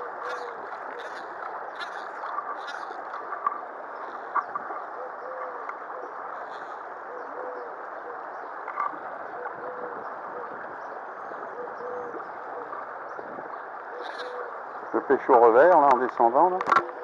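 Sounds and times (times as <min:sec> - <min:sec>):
stream water rushing over stones: 0:00.0 - 0:07.1
bird cooing: 0:00.0 - 0:15.1, 0:16.8 - 0:17.0.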